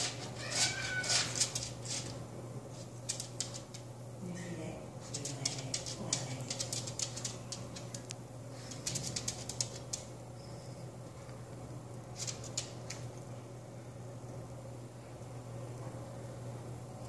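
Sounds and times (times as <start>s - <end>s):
dog toenails clicking on tile: 0.0s - 2.2s, 3.0s - 3.9s, 5.0s - 10.1s, 12.1s - 13.1s
steady low hum: 0.0s - 17.0s.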